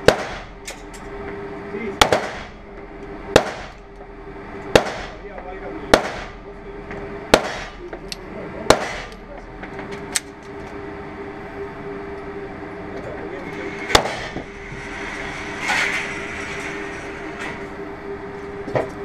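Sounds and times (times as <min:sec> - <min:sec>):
low steady hum: 0:00.0 - 0:19.0
lighter gunshot crack: 0:02.0 - 0:02.5, 0:07.3 - 0:07.8, 0:08.7 - 0:09.2
pistol shots echoing: 0:02.0 - 0:02.5, 0:03.3 - 0:03.8, 0:04.8 - 0:05.2, 0:05.9 - 0:06.4, 0:07.3 - 0:07.8, 0:08.7 - 0:09.2.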